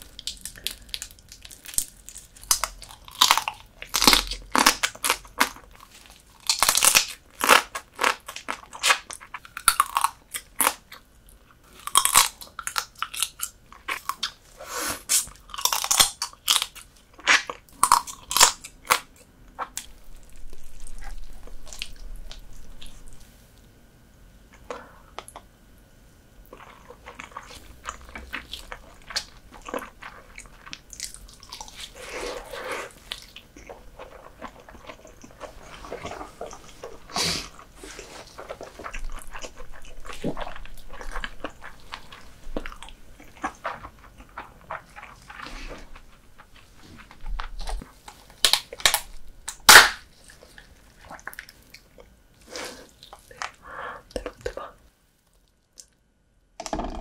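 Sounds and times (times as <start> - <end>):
crunching crab shell: 0.0 - 11.0, 11.8 - 14.4, 15.1 - 23.1, 47.4 - 51.9
wet chewing: 26.4 - 54.6.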